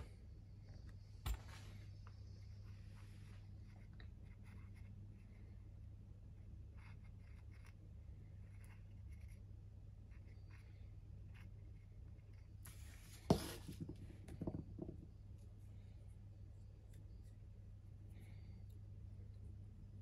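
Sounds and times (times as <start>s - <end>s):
steady low hum: 0.0s - 20.0s
faint scratching: 10.1s - 14.2s
light knocks and scraping: 12.7s - 15.2s.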